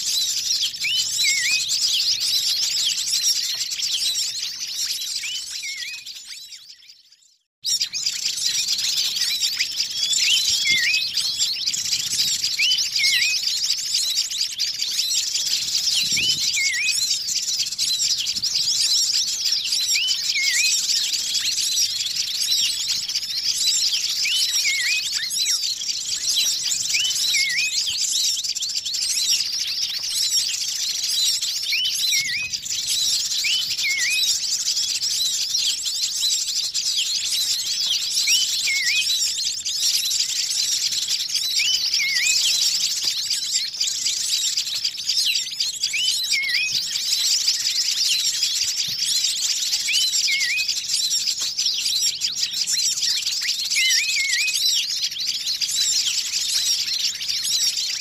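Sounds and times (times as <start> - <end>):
small birds chirping and twittering: 0.0 - 58.0
bird call dipping and rising: 4.8 - 6.9, 16.0 - 17.2, 45.4 - 47.0, 49.8 - 50.7.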